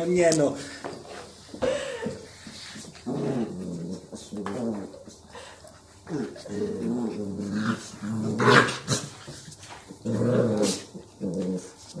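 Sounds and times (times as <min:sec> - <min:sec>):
dog growling: 0:03.0 - 0:05.1, 0:06.0 - 0:09.2, 0:09.9 - 0:12.0.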